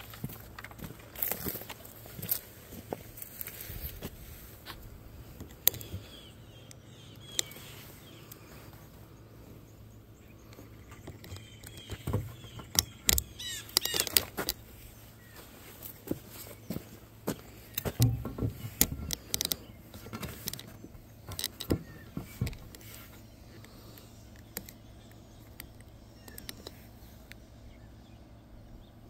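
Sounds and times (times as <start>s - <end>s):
scattered clicks and knocks: 10.9s - 14.6s, 17.7s - 23.1s.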